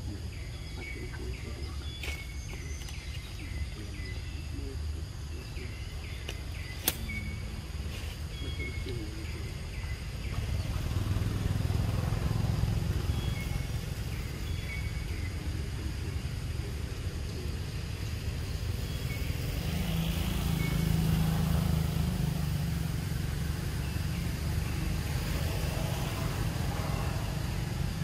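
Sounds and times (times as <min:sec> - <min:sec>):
sharp click: 0:06.2 - 0:07.1.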